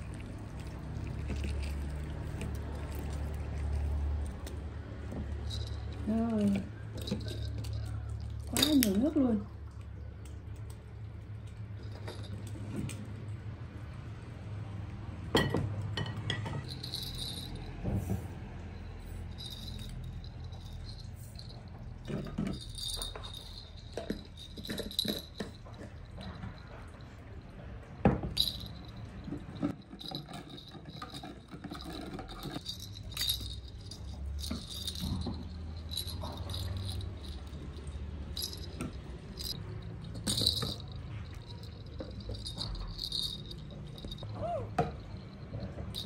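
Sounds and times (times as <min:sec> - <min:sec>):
plastic rattle toy rattling: 0:05.4 - 0:09.2, 0:16.7 - 0:17.7, 0:19.3 - 0:25.8, 0:28.4 - 0:44.3.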